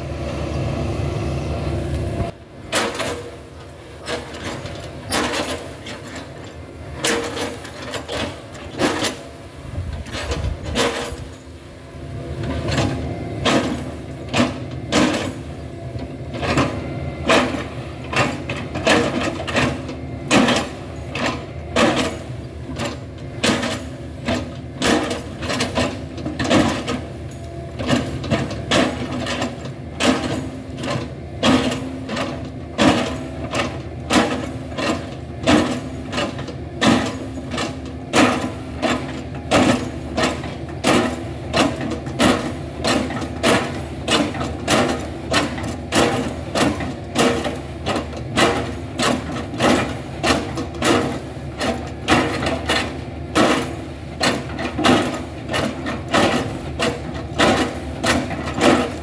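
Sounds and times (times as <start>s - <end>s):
diesel engine running: 0.0s - 59.0s
excavator bucket chopping wood: 2.7s - 3.4s, 12.7s - 15.4s, 16.4s - 27.1s, 27.8s - 59.0s.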